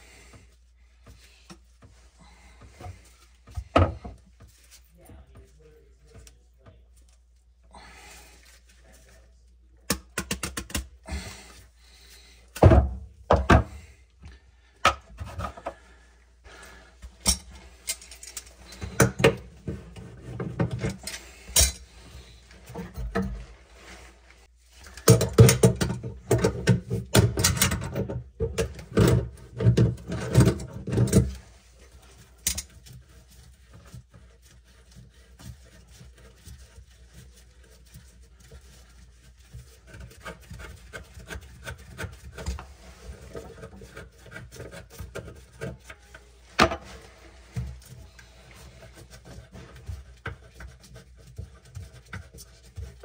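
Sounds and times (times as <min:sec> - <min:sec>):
rubbing and clattering: 0:17.1 - 0:53.0.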